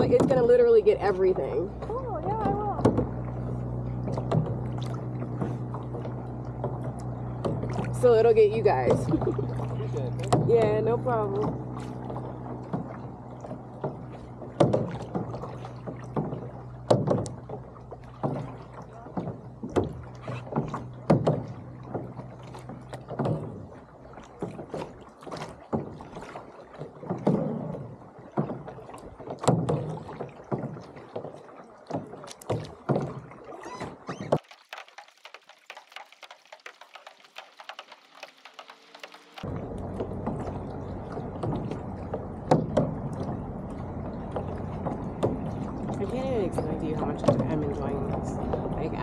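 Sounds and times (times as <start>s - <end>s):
low steady hum: 0.0s - 25.2s, 38.8s - 49.0s
water splashing against boat hull: 0.0s - 49.0s.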